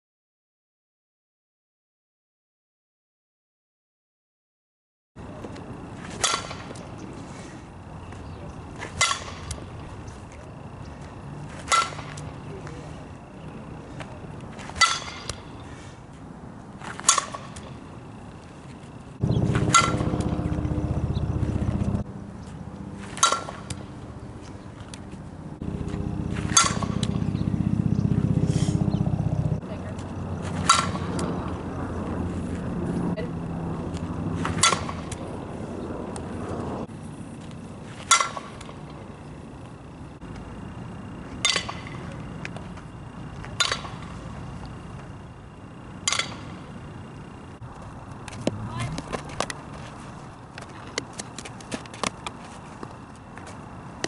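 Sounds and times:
bat pinging on ball: 9.0 - 9.6, 14.8 - 15.5, 19.6 - 20.4, 26.5 - 27.2
loud low drone: 19.2 - 23.0, 25.4 - 36.9.

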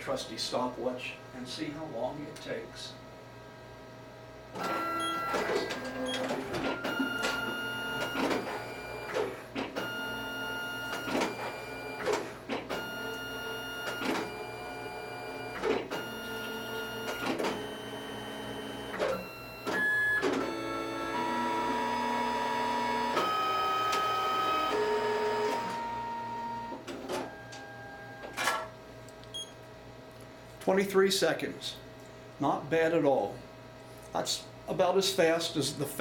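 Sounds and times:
printer clicks and clunks: 4.6 - 14.6, 15.4 - 22.1, 26.7 - 28.7
printer motors whirring: 4.6 - 28.6.

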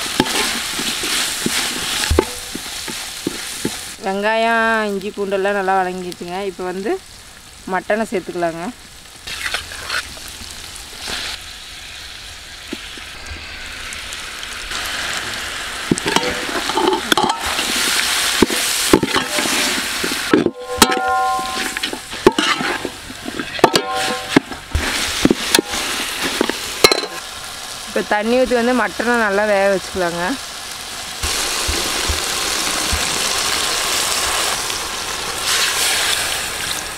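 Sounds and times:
meat sizzling in hot oil: 0.0 - 36.9
metal ladle scraping a pot: 16.1 - 17.8, 18.4 - 27.2
short metallic rings: 20.6 - 22.0, 23.6 - 24.4.

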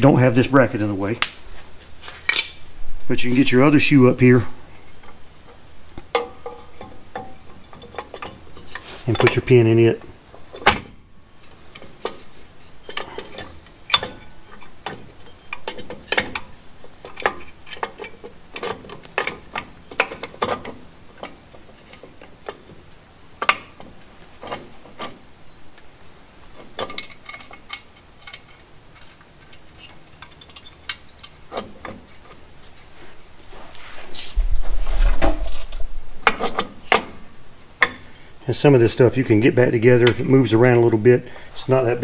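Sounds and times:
metallic clicks and clinks: 26.8 - 32.2.

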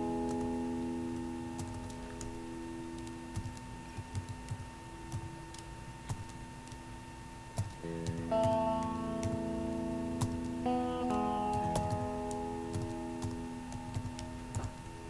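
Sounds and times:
guitar chord: 0.0 - 3.3, 7.8 - 15.0
keyboard keys clicking: 0.2 - 0.5, 1.1 - 6.8, 7.5 - 9.6, 10.2 - 14.9.

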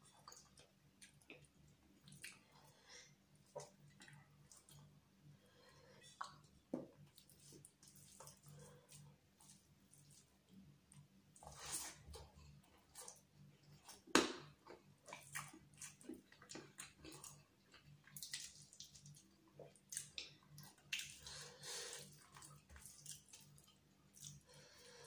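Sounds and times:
chewing and mouth noises: 0.0 - 2.8, 14.6 - 24.5.

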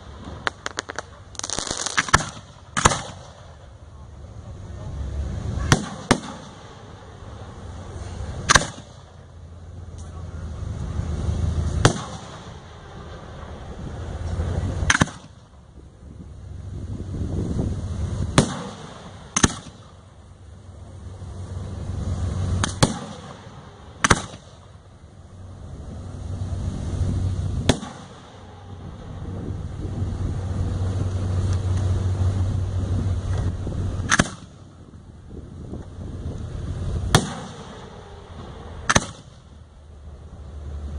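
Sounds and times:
firework bangs: 0.0 - 3.8, 5.5 - 9.3, 11.7 - 15.6, 18.1 - 20.2, 21.4 - 24.9, 27.1 - 30.6, 34.0 - 34.9, 36.8 - 39.6
low rumble: 0.0 - 40.9.

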